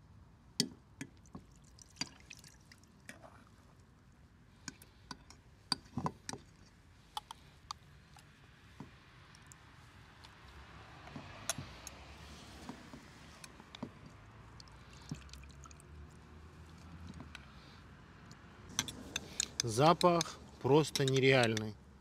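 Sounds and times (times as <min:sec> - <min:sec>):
wet stew sounds: 0:13.0 - 0:17.8.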